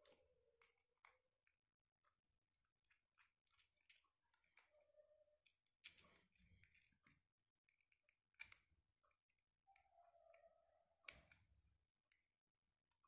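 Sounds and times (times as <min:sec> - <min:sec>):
wires clicking and scraping: 0:02.5 - 0:12.3.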